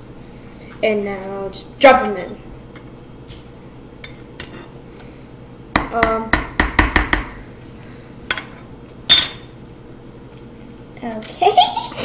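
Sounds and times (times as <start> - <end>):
spoons tapping on wooden board: 5.8 - 7.4.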